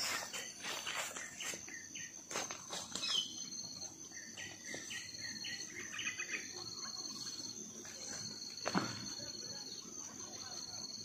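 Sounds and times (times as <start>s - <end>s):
bird calling: 0.0s - 7.4s
insects trilling: 0.0s - 11.0s.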